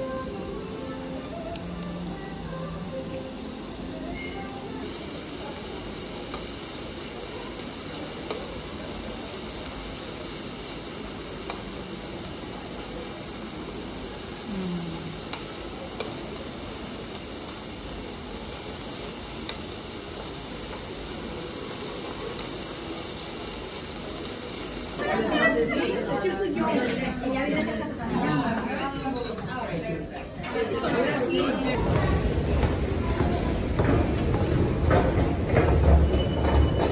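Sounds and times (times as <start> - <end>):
meat sizzling on a grill plate: 0.0 - 25.0.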